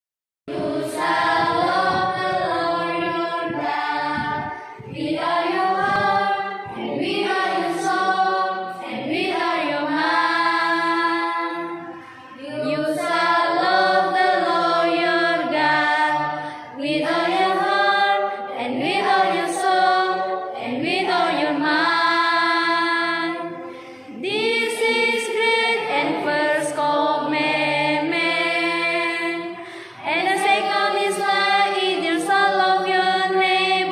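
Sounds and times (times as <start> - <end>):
group singing a cappella: 0.5 - 33.9
singers breathing: 11.9 - 12.4, 16.3 - 16.8, 23.6 - 24.2, 29.6 - 30.1.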